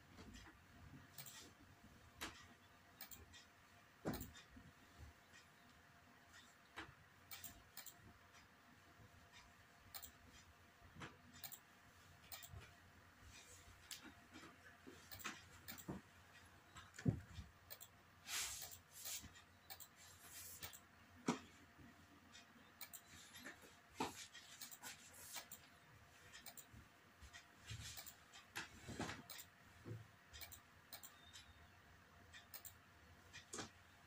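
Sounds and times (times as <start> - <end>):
computer mouse clicks: 2.2 - 3.5, 6.3 - 8.5, 9.9 - 11.7, 12.3 - 12.8, 15.1 - 16.0, 17.6 - 18.0, 18.6 - 20.0, 20.6 - 21.5, 22.3 - 23.6, 24.5 - 25.7, 26.3 - 26.7, 28.0 - 28.6, 30.4 - 31.6, 32.3 - 33.8.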